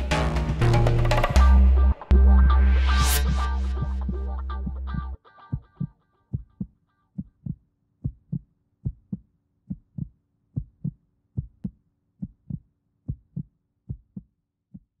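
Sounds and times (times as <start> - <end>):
heartbeat thumps: 3.7 - 14.9.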